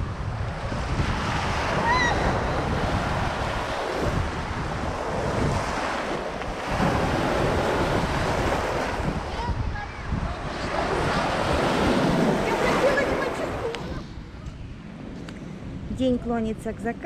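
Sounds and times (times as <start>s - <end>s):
wind rumbling on microphone: 0.0s - 17.0s
small waves breaking: 0.8s - 14.1s.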